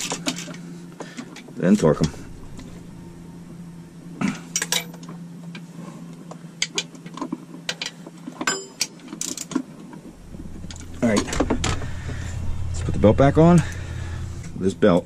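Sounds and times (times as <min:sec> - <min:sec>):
low hum: 0:00.0 - 0:06.6, 0:09.9 - 0:15.0.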